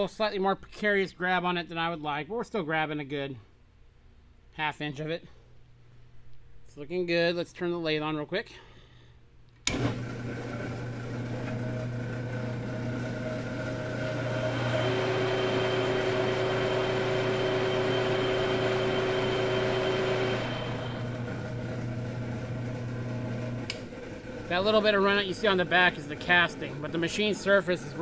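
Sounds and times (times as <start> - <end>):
metal lathe humming: 9.7 - 28.0
steady whine: 14.2 - 28.0.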